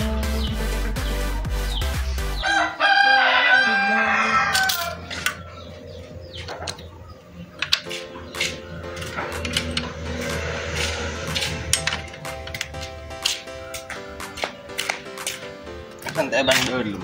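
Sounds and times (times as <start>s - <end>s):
background music: 0.0s - 17.0s
rooster crowing: 2.4s - 5.9s.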